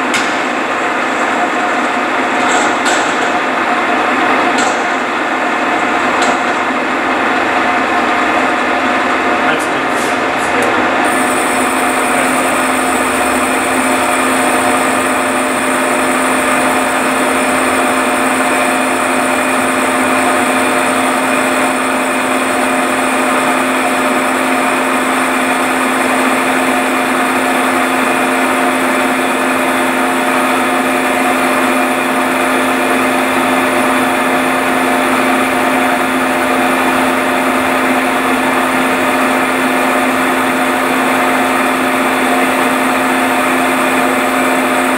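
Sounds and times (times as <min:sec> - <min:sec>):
higher whine: 0:03.4 - 0:44.9
milling machine cutting metal: 0:09.3 - 0:44.9.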